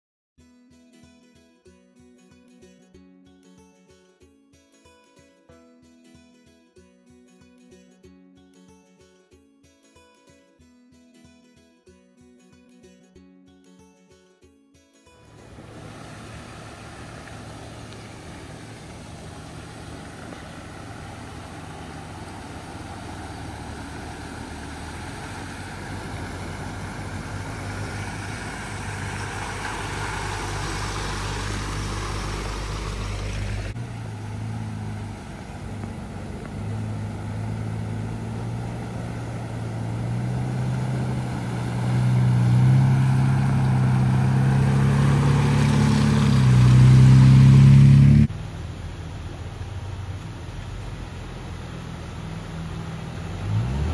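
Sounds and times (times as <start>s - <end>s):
engine revving: 15.3s - 48.7s, 49.8s - 53.9s
vehicle engine driving: 15.3s - 53.9s.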